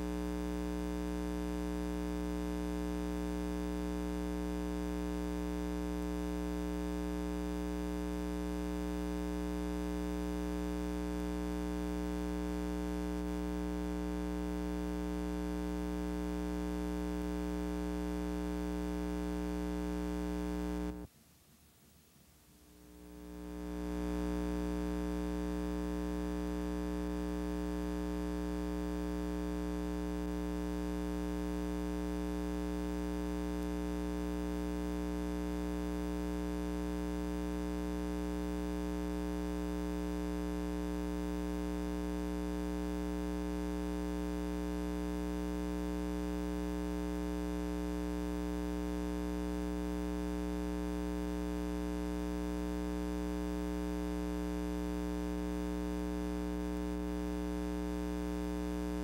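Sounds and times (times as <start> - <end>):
electrical mains hum: 14.5 - 21.1, 22.4 - 37.6.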